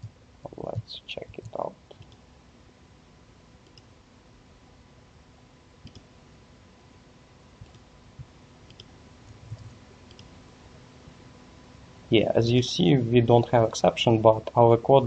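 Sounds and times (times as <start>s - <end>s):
low steady hiss: 0.0s - 15.0s
computer mouse clicks: 1.2s - 2.2s, 3.6s - 3.9s, 5.8s - 6.1s, 7.6s - 7.8s, 8.6s - 10.3s
keyboard keystrokes: 5.8s - 6.0s.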